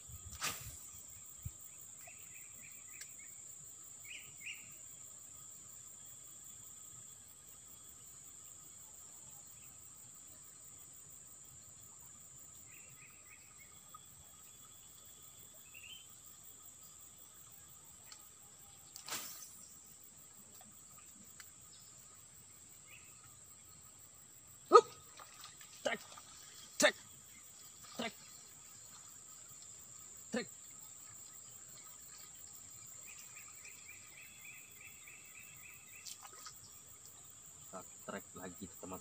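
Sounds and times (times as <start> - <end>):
insects droning: 0.0 - 39.0
fishing rod swish: 0.3 - 0.8, 19.0 - 19.6.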